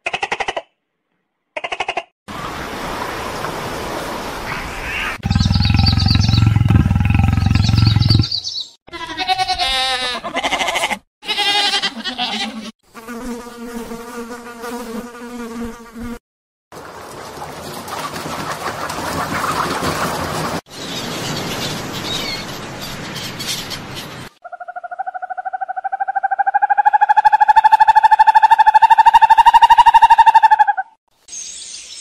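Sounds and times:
loud low growl: 5.2s - 8.3s
beetle buzzing: 5.2s - 8.4s
wavering pitched animal calls: 5.2s - 8.5s, 24.4s - 31.0s.

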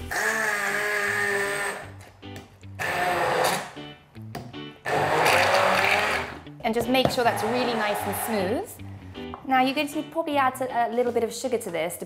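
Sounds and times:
stick blender whirring: 2.8s - 3.8s, 4.8s - 6.4s, 7.1s - 8.6s.

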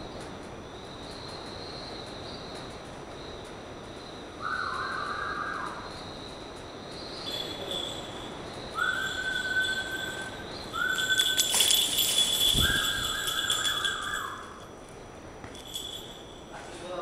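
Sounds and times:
rustling: 6.3s - 17.0s
thin high ringing tone: 7.0s - 14.8s, 15.4s - 17.0s
whistled notes: 7.1s - 14.7s.

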